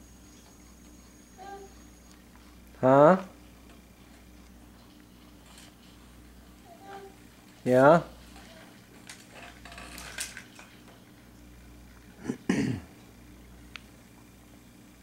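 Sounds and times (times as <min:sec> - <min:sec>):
faint steady hum: 0:00.0 - 0:15.0
person clearing throat: 0:12.2 - 0:12.9.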